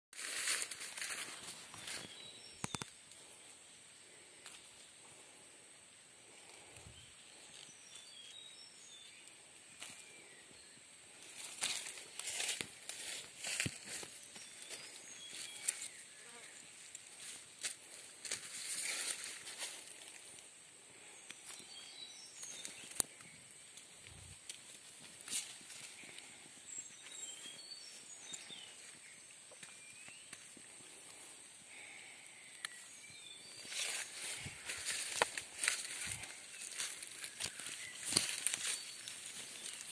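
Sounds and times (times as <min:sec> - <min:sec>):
rustling of leafy branches: 0:00.1 - 0:03.5, 0:06.2 - 0:32.1, 0:32.7 - 0:39.9
faint bird chirps: 0:25.6 - 0:30.9.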